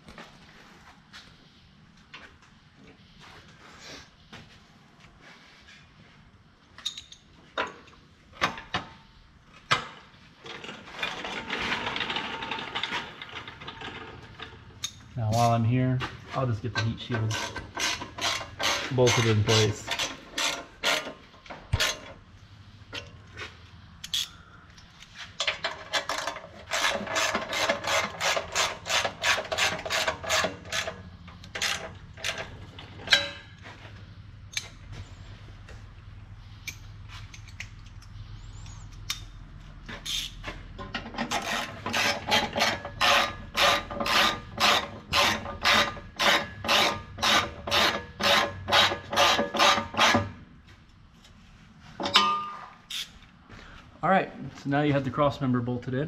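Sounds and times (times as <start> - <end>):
ratchet wrench rasping: 41.3 - 50.2.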